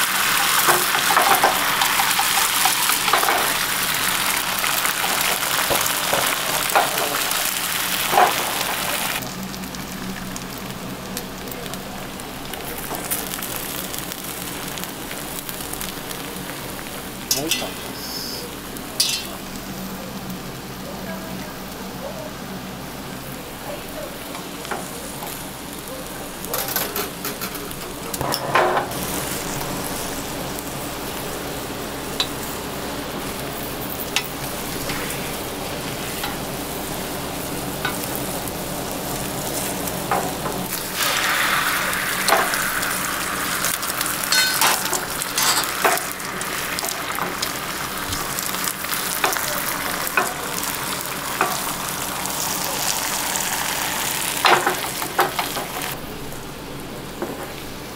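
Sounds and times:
batter hissing in a pan: 0.0 - 28.2, 28.9 - 57.9
egg sizzling in a pan: 0.0 - 57.2
chopsticks tapping a pan: 0.6 - 3.6, 19.0 - 19.4, 44.3 - 46.1, 49.1 - 49.5, 51.4 - 51.7.

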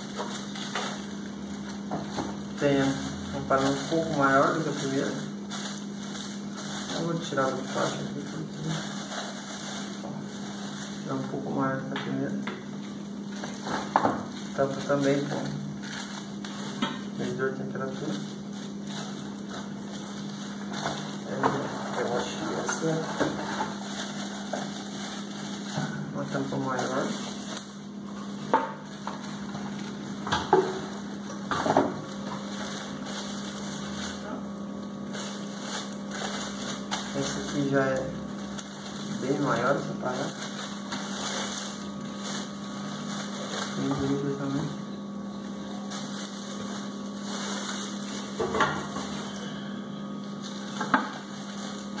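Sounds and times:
plastic rustling: 0.0 - 52.0
steady low hum: 0.0 - 52.0.

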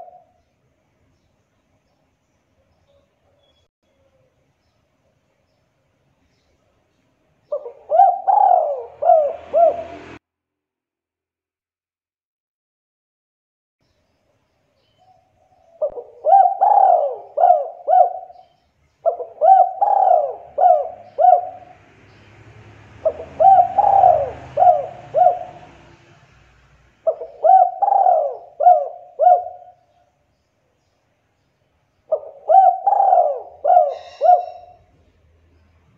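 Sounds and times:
dove cooing: 0.0 - 0.4, 7.5 - 10.2, 15.5 - 21.8, 23.0 - 26.0, 27.0 - 30.0, 32.1 - 34.9.

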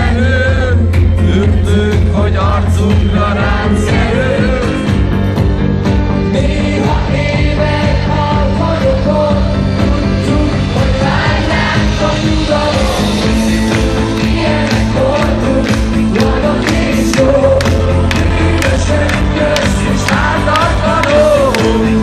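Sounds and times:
man singing: 0.0 - 5.2, 6.2 - 22.0
live pop-rock band: 0.0 - 22.0.

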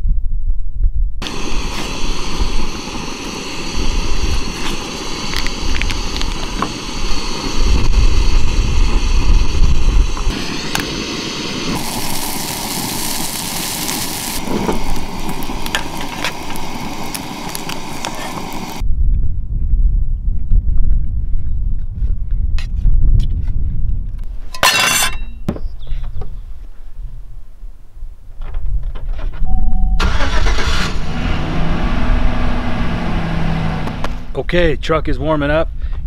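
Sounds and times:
wind rumbling on microphone: 0.0 - 24.6, 25.2 - 30.0, 31.0 - 36.0
camping stove hissing: 1.2 - 18.8
food sizzling in a pan: 10.3 - 18.8.

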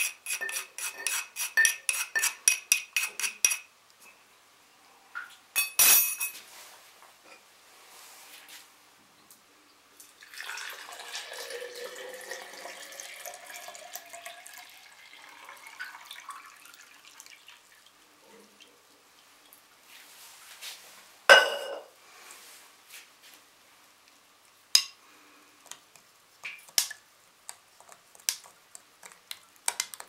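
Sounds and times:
water pouring into a glass jar: 10.1 - 17.9.

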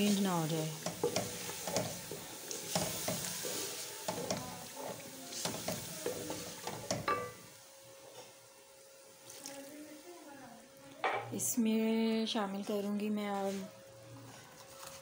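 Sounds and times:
onions sizzling in oil: 0.0 - 10.7
wooden spoon scraping a pot: 0.8 - 7.1.

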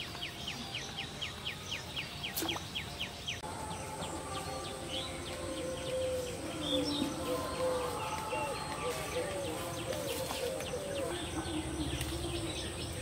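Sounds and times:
scattered bird calls: 0.0 - 13.0
high insect whine: 3.4 - 13.0.

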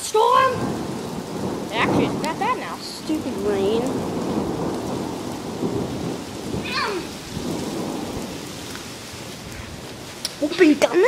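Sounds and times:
heavy rain on concrete: 0.0 - 11.0
low rumble of thunder: 0.0 - 11.0.

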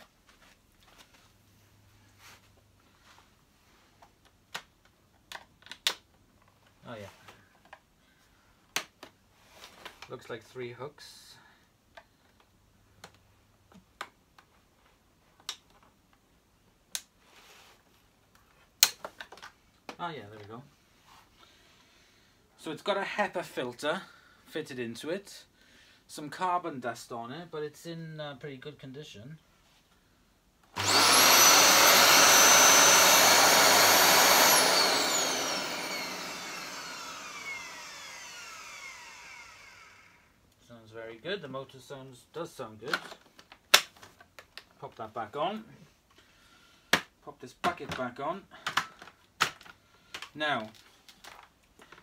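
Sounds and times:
vacuum cleaner motor whining: 30.8 - 40.3.

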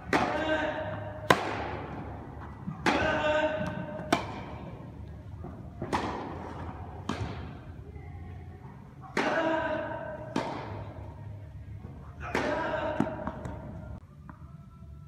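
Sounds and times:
tennis ball struck by racket: 1.2 - 2.2, 2.8 - 4.6, 5.8 - 7.6, 10.3 - 10.8
tennis ball bouncing on hard court: 1.2 - 4.6, 5.4 - 7.6.

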